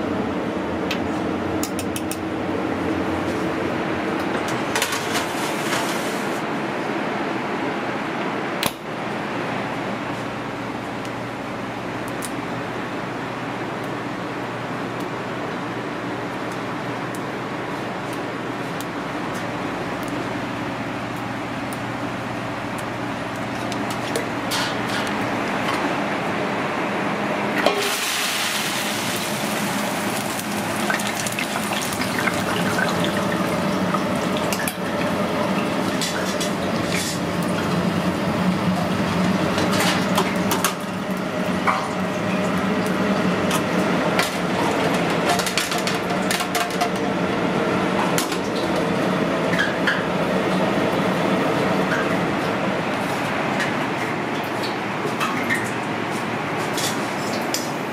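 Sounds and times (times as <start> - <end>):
oil sizzling: 27.6 - 44.6.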